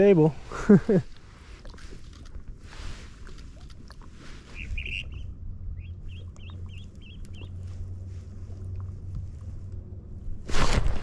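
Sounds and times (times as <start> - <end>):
low steady rumble: 0.0 - 11.0
bird warbling call: 4.4 - 7.7.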